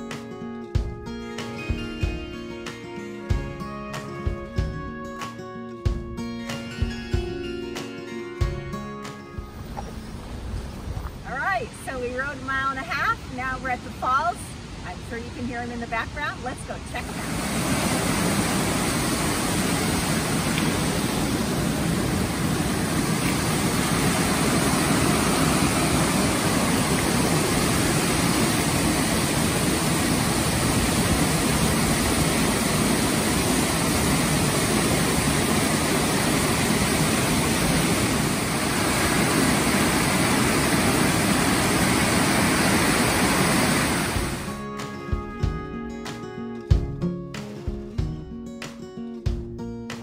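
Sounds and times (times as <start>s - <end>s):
waterfall rushing: 11.6s - 44.6s.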